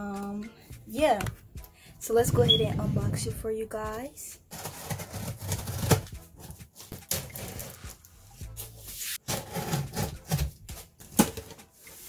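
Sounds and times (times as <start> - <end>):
scraping and rustling cardboard: 4.5 - 12.0.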